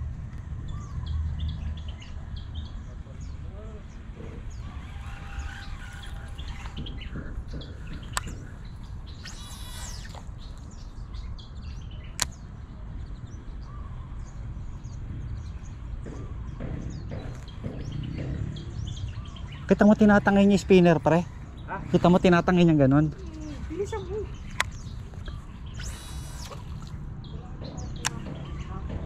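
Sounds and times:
small birds chirping: 0.7s - 29.0s
sharp clicks: 4.6s - 10.7s, 12.1s - 12.4s, 24.4s - 27.0s.

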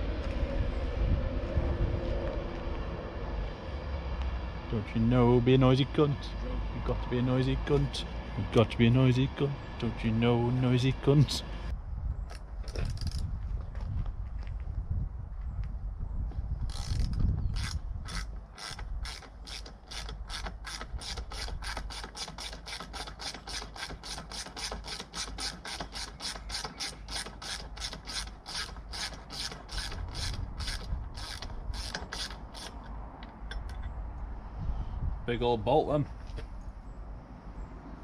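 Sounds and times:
socket ratchet clicking: 16.7s - 34.0s.

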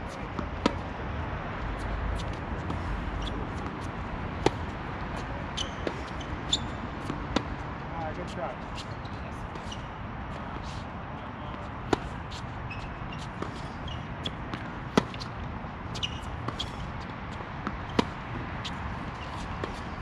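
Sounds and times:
racket hitting tennis ball: 2.2s - 4.7s, 5.6s - 6.3s, 11.8s - 12.5s, 13.2s - 20.0s.

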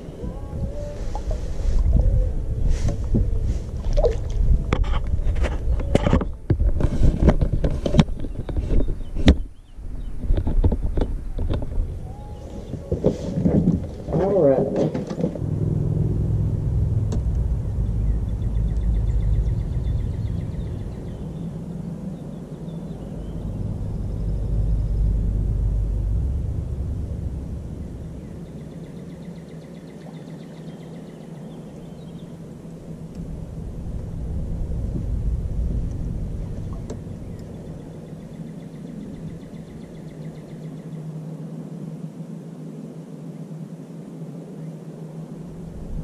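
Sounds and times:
wind rumble on microphone: 0.0s - 46.0s.

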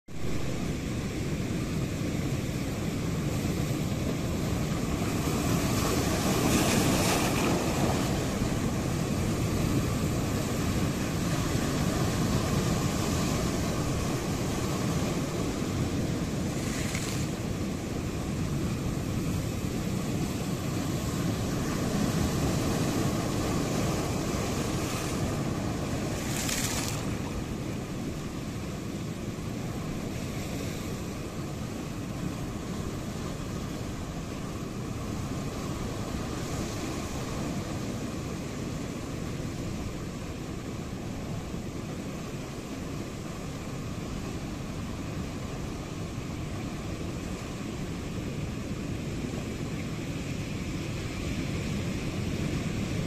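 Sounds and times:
surf rushing: 0.1s - 53.0s
waves breaking with a hiss: 0.1s - 53.0s.

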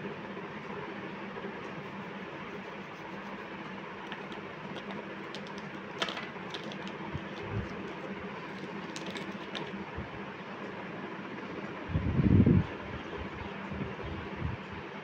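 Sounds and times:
pastel sticks clicking in plastic case: 4.0s - 9.8s.

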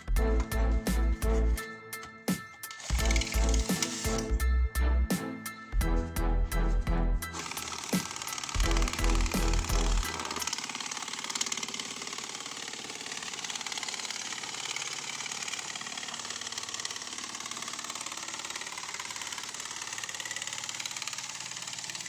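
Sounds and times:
drill driven shear cutting metal: 2.6s - 4.5s, 7.2s - 22.0s.

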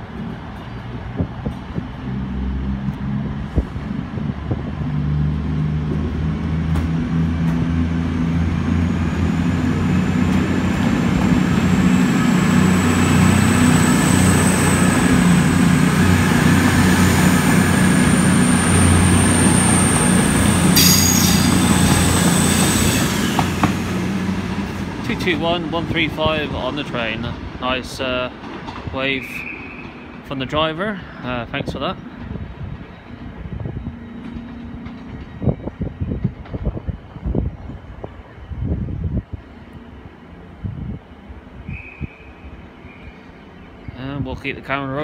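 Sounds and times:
diesel train engines accelerating: 0.0s - 45.0s
thin high whine: 20.7s - 23.1s.

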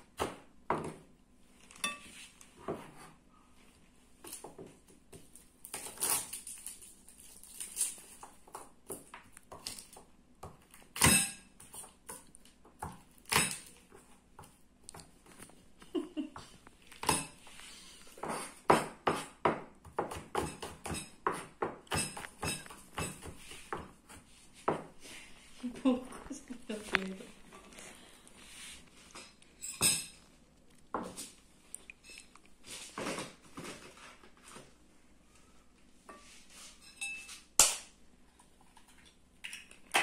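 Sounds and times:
knife chopping on plastic board: 18.2s - 24.9s.

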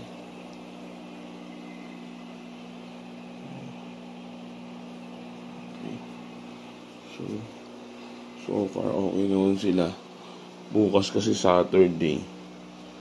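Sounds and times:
air bubbling through filters: 0.0s - 8.8s
air pumps humming: 0.0s - 13.0s.

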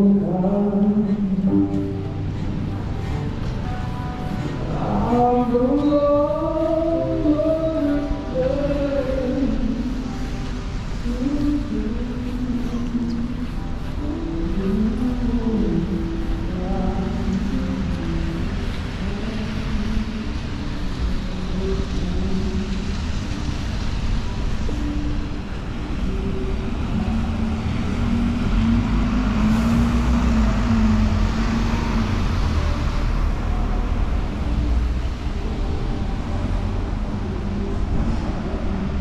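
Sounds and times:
low rumble of vehicle engines: 0.0s - 39.0s
louder vehicle passing: 25.8s - 39.0s.

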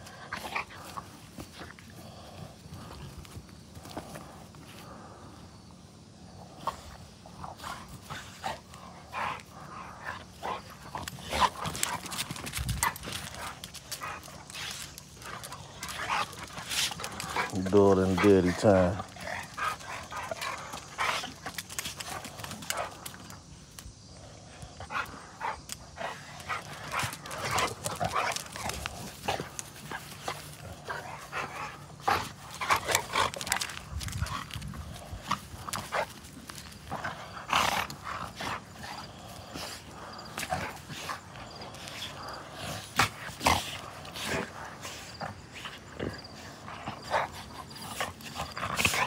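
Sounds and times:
dogs play-fighting: 0.0s - 49.0s
dogs scuffling: 7.3s - 23.7s, 25.4s - 49.0s.

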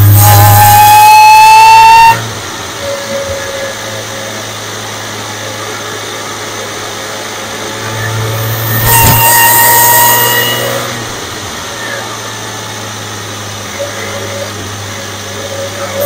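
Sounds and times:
low engine hum: 0.0s - 0.6s
supercharger whine: 0.0s - 16.0s.

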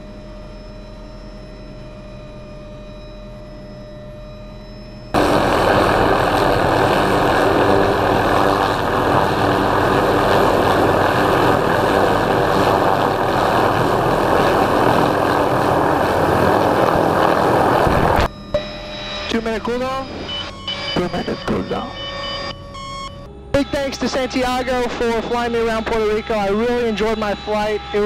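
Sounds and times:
helicopter turbine and rotor running: 0.0s - 22.5s.

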